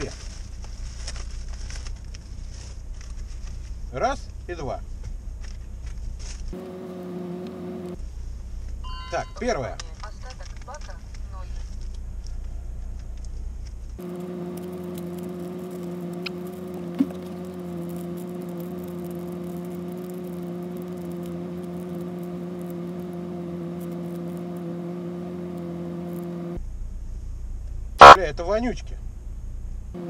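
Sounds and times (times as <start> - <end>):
steady low hum: 0.0 - 30.0
plastic packaging crinkling: 14.5 - 23.1.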